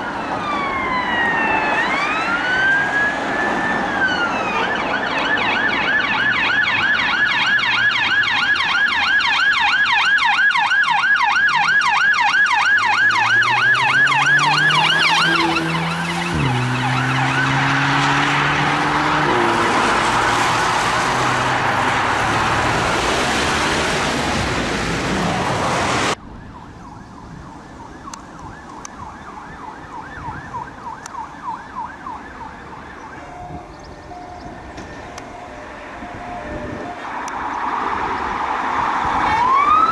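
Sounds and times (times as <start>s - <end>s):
yelp siren: 0.0s - 23.1s, 26.1s - 38.2s, 39.1s - 39.9s
traffic: 0.0s - 39.9s
car engine revving: 12.9s - 26.2s.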